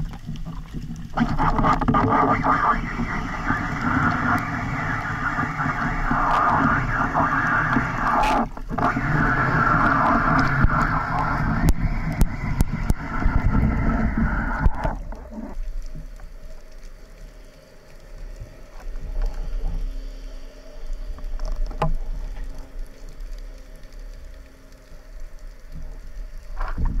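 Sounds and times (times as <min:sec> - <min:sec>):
faint clicks: 0:00.0 - 0:27.0
low underwater rumble: 0:00.0 - 0:27.0
water rushing and bubbles: 0:00.0 - 0:27.0.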